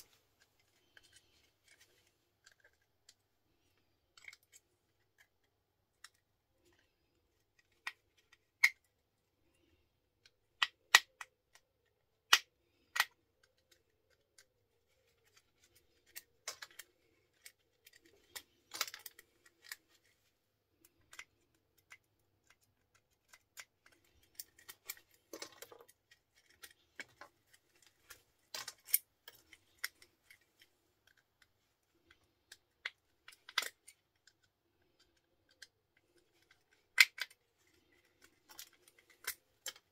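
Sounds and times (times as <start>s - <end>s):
tools prying plastic clicks: 36.4s - 37.4s.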